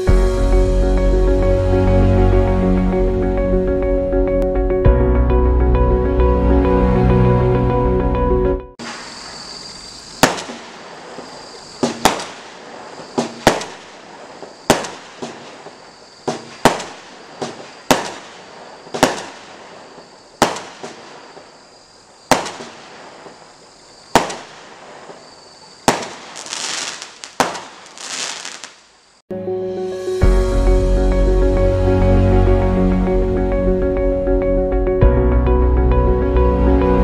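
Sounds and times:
firework bangs: 0:08.8 - 0:29.2
firework crackling and fizzing: 0:08.8 - 0:29.2.

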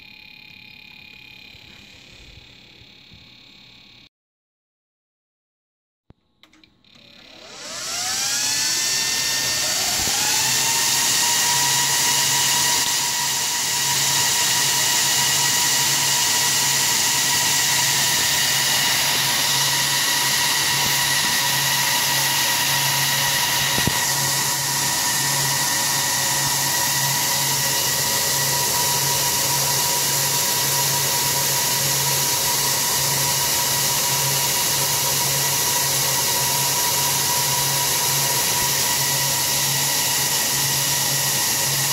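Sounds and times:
server fans whining: 0:07.3 - 0:41.9.

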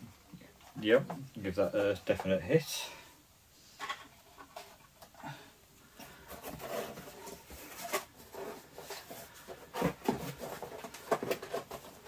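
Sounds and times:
packaging rustling and clicking: 0:06.0 - 0:12.0.

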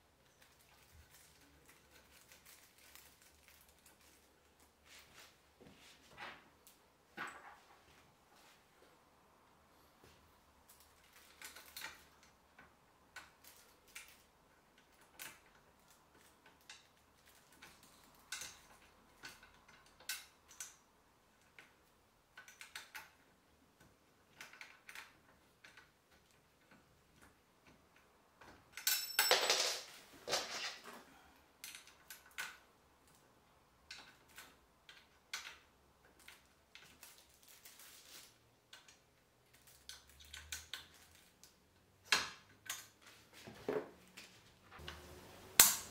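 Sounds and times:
plastic wrapping crinkling: 0:00.6 - 0:04.3.

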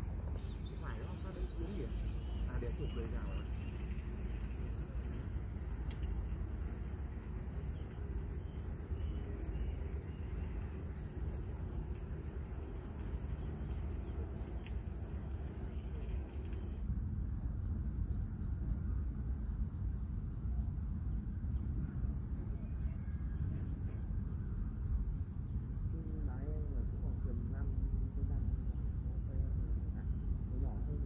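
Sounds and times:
insect trilling: 0:00.0 - 0:16.8
low outdoor rumble: 0:00.0 - 0:31.0.

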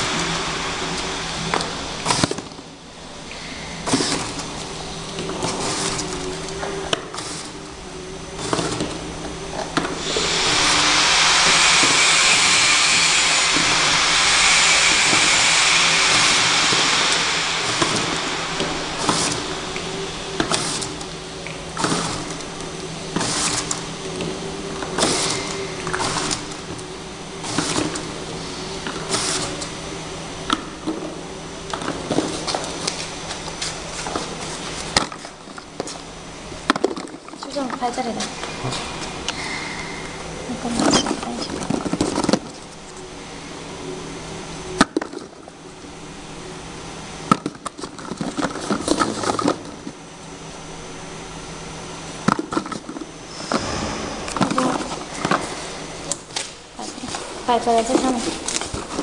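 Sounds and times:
loud hiss: 0:00.0 - 0:30.8, 0:38.3 - 0:42.2, 0:53.2 - 0:57.4
labelling machine humming: 0:00.0 - 0:59.0.

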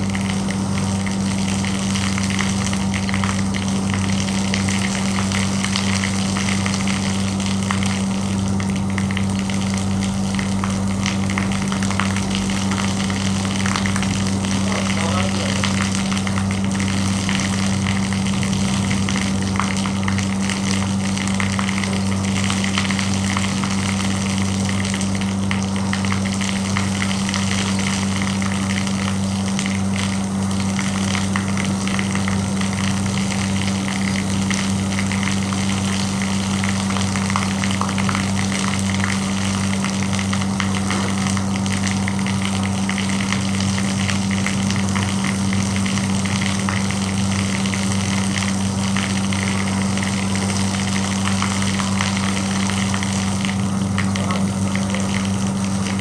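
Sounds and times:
electric pump humming: 0:00.0 - 0:56.0
water spray hissing and spattering: 0:10.6 - 0:25.2.

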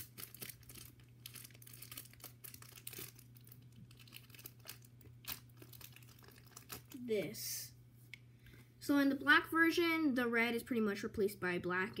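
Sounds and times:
plastic bag crinkling and tearing: 0:00.0 - 0:07.1.

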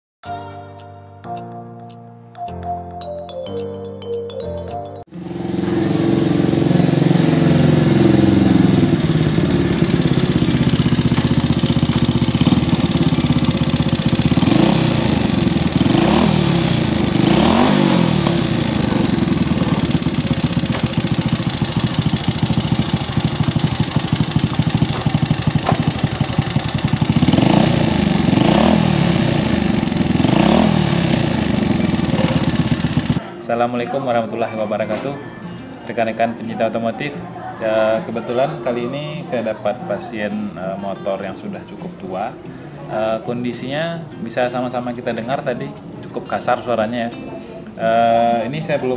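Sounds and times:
motorcycle engine idling roughly: 0:05.2 - 0:33.2.

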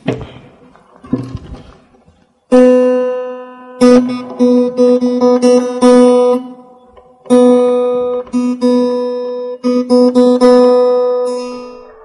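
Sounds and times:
acoustic guitar note plucked: 0:02.5 - 0:12.0.

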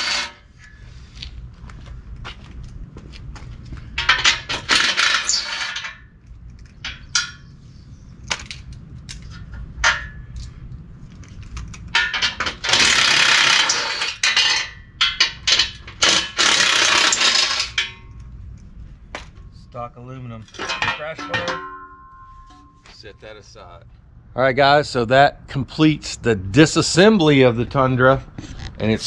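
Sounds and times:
cordless impact wrench bursts: 0:12.6 - 0:14.2, 0:16.0 - 0:17.8.

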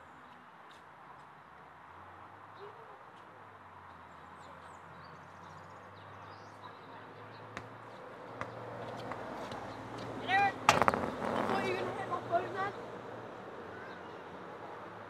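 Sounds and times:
football bouncing on rubber surface: 0:07.6 - 0:09.7, 0:10.7 - 0:11.2.

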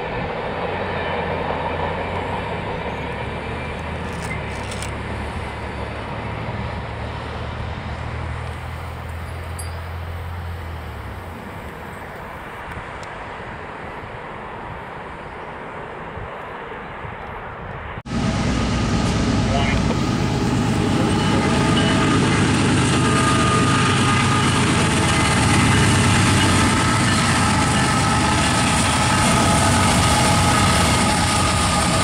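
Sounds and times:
freight train rumbling past: 0:00.0 - 0:32.0
low drone: 0:18.1 - 0:32.0.

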